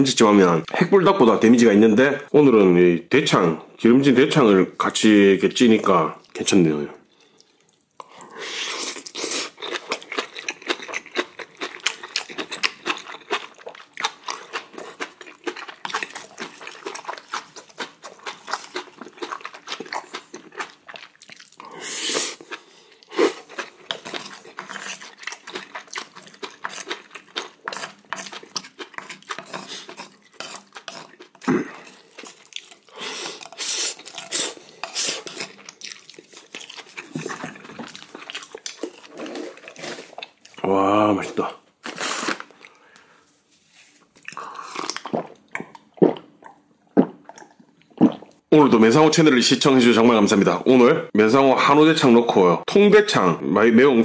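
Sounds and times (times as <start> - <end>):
wet chewing and slurping: 7.1 - 40.6, 44.1 - 48.4.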